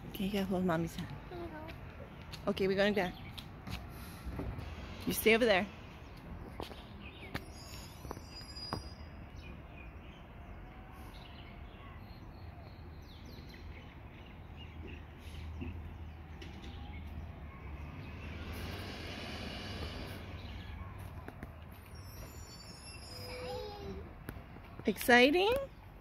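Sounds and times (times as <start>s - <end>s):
diesel truck engine rumbling: 15.2s - 21.2s.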